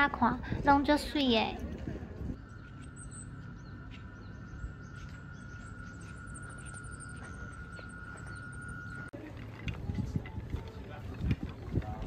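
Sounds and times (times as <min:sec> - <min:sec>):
small birds chirping: 0:02.3 - 0:09.1
high-pitched tone: 0:02.4 - 0:09.1.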